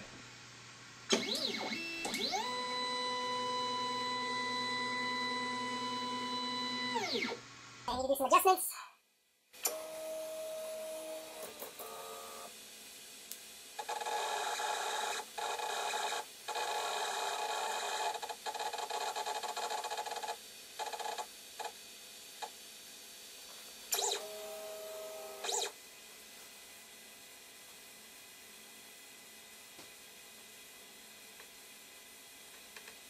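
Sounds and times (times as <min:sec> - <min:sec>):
print head motor whine: 0:01.1 - 0:07.4, 0:09.7 - 0:12.5, 0:13.8 - 0:20.3, 0:23.9 - 0:25.8.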